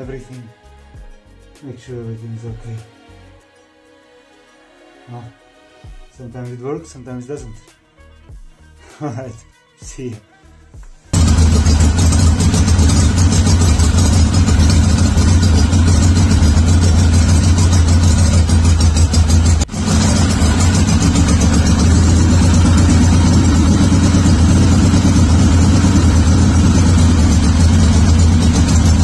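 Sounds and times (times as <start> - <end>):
motorcycle engine idling: 11.2 - 29.0.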